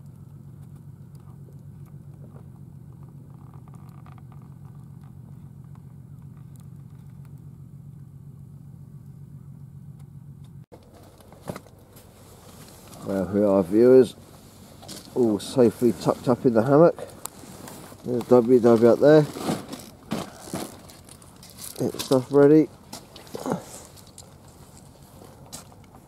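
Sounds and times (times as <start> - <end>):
faint crackles: 10.8 - 26.0.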